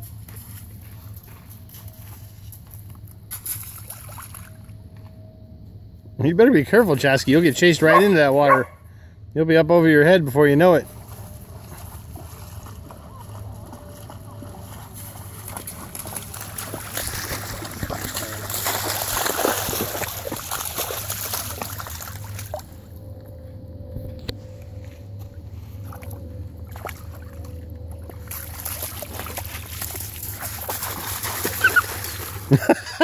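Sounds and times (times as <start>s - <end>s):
dogs splashing through water: 3.3s - 4.6s, 10.8s - 22.8s, 25.8s - 33.0s.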